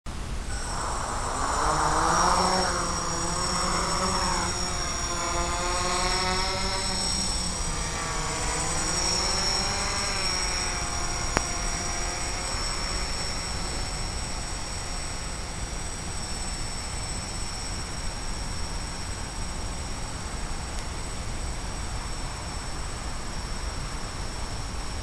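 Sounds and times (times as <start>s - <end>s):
rush of noise: 0.1s - 25.0s
quadcopter propellers whining: 0.2s - 25.0s.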